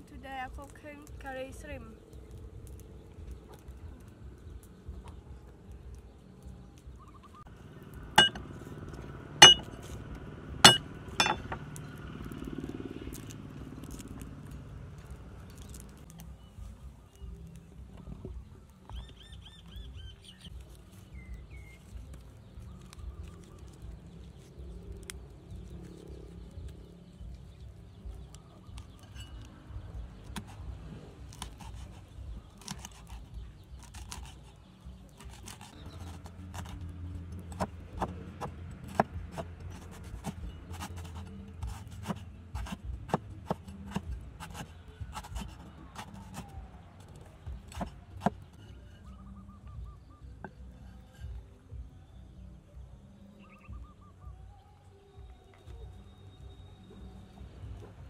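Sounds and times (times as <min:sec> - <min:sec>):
cleaver chopping on wooden block: 0:08.2 - 0:08.4, 0:09.4 - 0:09.7, 0:10.6 - 0:11.6, 0:37.5 - 0:46.5, 0:47.6 - 0:48.6.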